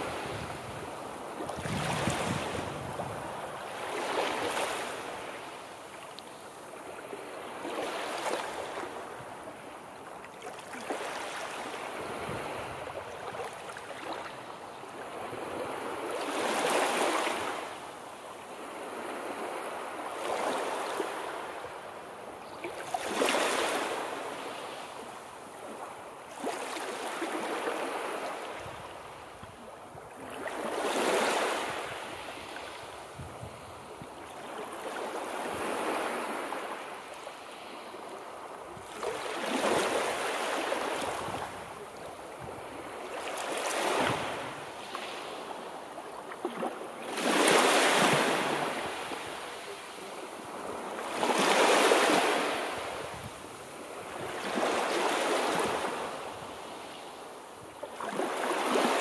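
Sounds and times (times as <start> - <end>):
waves breaking: 25.7 - 28.4, 38.8 - 57.0, 57.9 - 59.0.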